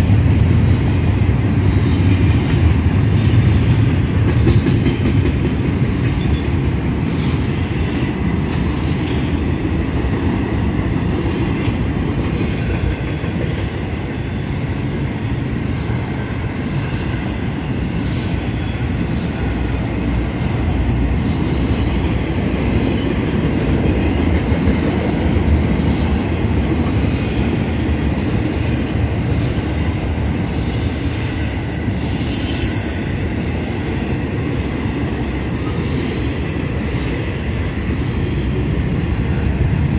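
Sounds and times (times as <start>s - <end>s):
steel wheels rumbling on rails: 0.0s - 39.9s
high-pitched wheel squeals: 32.1s - 32.9s.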